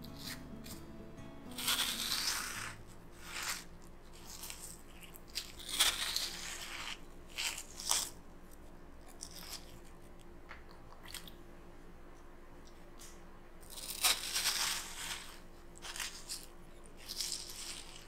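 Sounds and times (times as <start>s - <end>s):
melon baller scooping watermelon: 0.0s - 9.9s.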